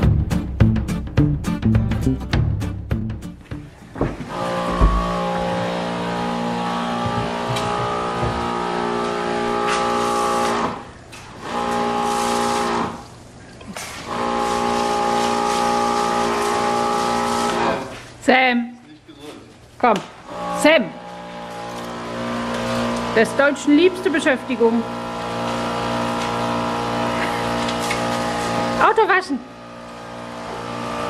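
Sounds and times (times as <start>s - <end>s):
pressure washer motor humming: 3.3s - 13.2s, 13.8s - 17.9s, 20.3s - 31.0s.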